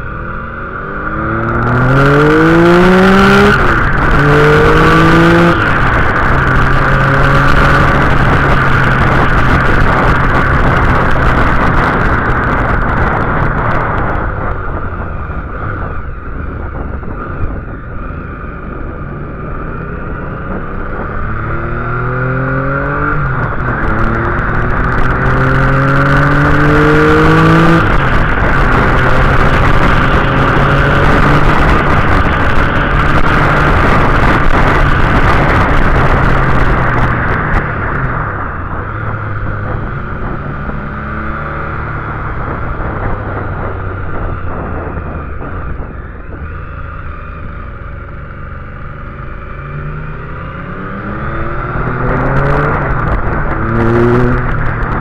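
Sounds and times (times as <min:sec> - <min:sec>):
motorcycle engine revving through gears: 0:00.0 - 0:55.0
wind rush on microphone: 0:00.0 - 0:55.0.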